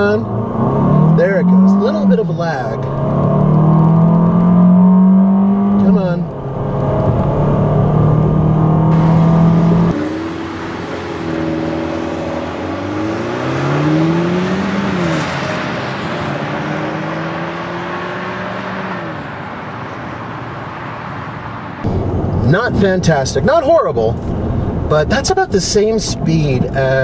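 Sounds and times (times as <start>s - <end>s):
car engine at full throttle: 0.0s - 27.0s
wind and road noise hiss: 8.9s - 12.8s.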